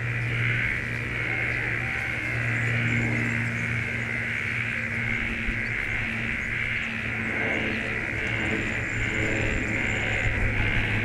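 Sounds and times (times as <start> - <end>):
high-pitched insect chorus: 0.0 - 11.0
low steady hum: 0.0 - 11.0.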